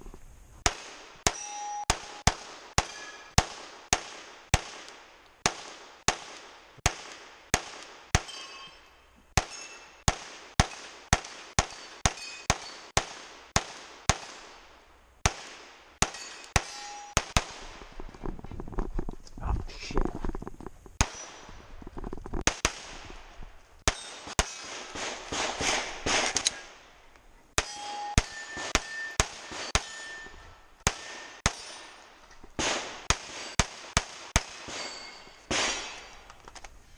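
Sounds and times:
rapid pistol fire: 0:00.6 - 0:08.3, 0:09.4 - 0:14.6, 0:15.2 - 0:17.8, 0:22.4 - 0:23.2, 0:23.9 - 0:26.8, 0:30.8 - 0:32.0, 0:32.6 - 0:36.1
steel targets ringing: 0:01.2 - 0:03.4, 0:08.2 - 0:10.1, 0:11.6 - 0:13.0, 0:16.0 - 0:17.2, 0:23.9 - 0:24.8, 0:27.6 - 0:32.0, 0:34.4 - 0:36.2.

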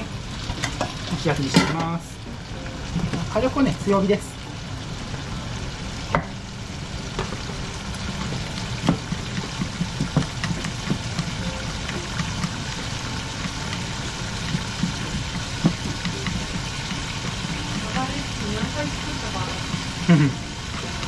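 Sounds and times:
frying pan sizzling: 0:00.0 - 0:21.0
chopsticks tapping a pan: 0:08.2 - 0:21.0.

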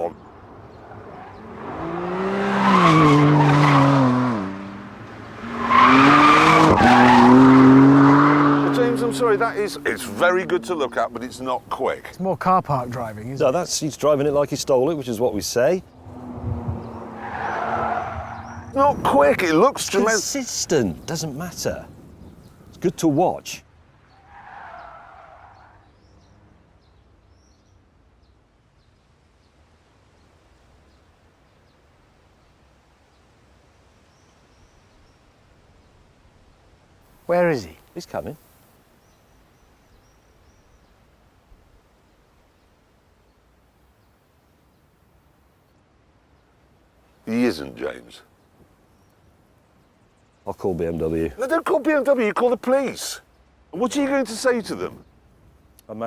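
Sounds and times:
car engine revving: 0:00.8 - 0:11.0, 0:15.9 - 0:19.0
tyres squealing: 0:05.4 - 0:11.4, 0:16.9 - 0:21.2
faint bird chirps: 0:38.9 - 0:41.0.

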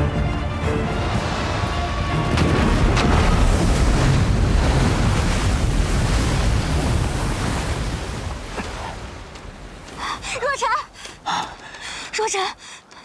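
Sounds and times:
splashing rushing water: 0:00.4 - 0:12.1
deep rumble: 0:00.9 - 0:08.2.

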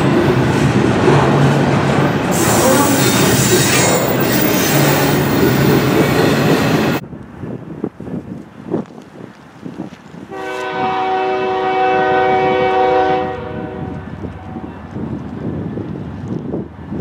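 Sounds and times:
locomotive air horn blast: 0:02.3 - 0:04.2, 0:10.3 - 0:14.7
wind rumble on microphone: 0:05.9 - 0:17.0.

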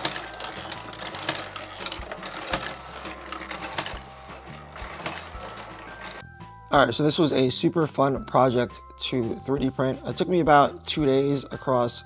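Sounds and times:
marbles clicking on plastic tracks: 0:00.0 - 0:06.2.

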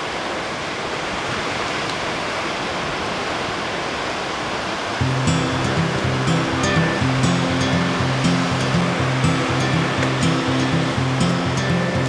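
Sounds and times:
ocean surf breaking: 0:00.8 - 0:12.0
music with bass line: 0:05.0 - 0:12.0.

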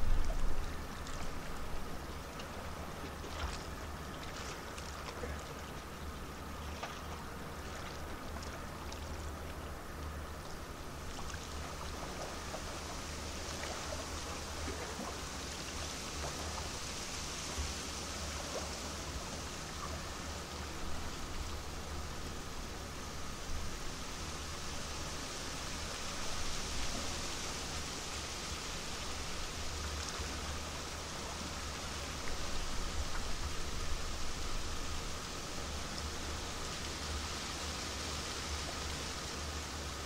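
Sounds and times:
ship low hum: 0:00.0 - 0:37.6
water washing along hull: 0:00.0 - 0:40.0.

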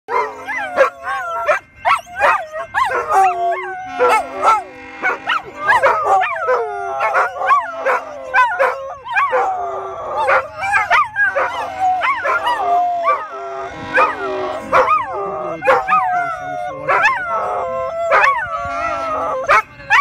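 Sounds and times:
train horn: 0:00.1 - 0:08.4, 0:10.2 - 0:16.0, 0:18.2 - 0:20.0
dogs howling and yipping: 0:00.1 - 0:20.0.

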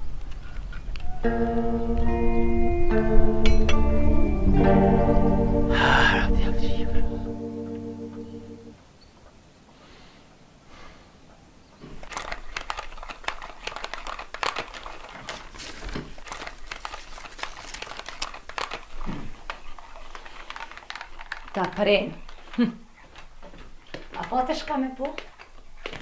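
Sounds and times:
paper rustling and crinkling: 0:11.8 - 0:26.0.

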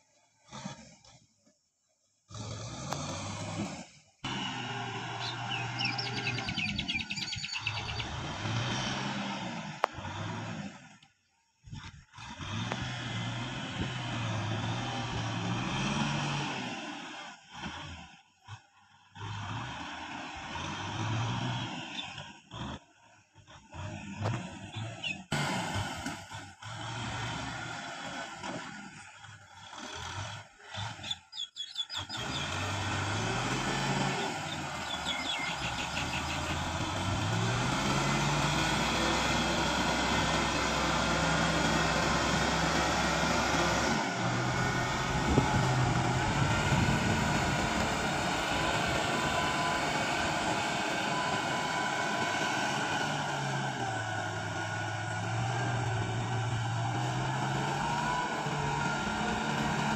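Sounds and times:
tractor diesel engine working: 0:02.3 - 0:59.9.

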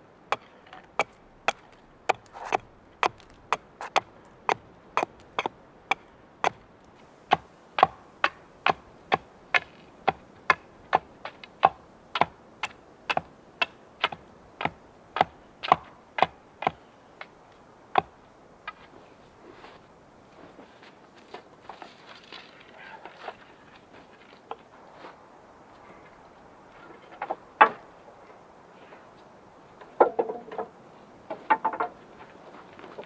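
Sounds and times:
hatchet splitting wood: 0:00.3 - 0:06.6, 0:07.3 - 0:16.8.

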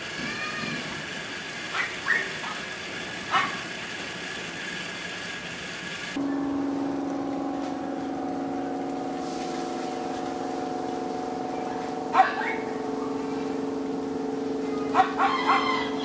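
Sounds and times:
boat engine droning: 0:00.0 - 0:16.0
dog barking: 0:01.7 - 0:02.7, 0:03.3 - 0:03.7, 0:12.1 - 0:12.7.

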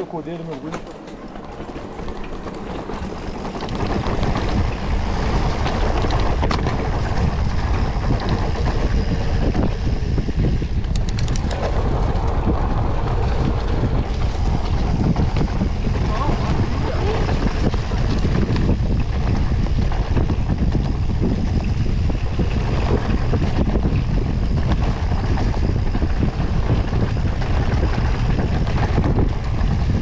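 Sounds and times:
bike rumbling over dirt trail: 0:00.0 - 0:30.0
wind buffeting microphone: 0:00.0 - 0:30.0
sharp clicks: 0:10.8 - 0:11.6.

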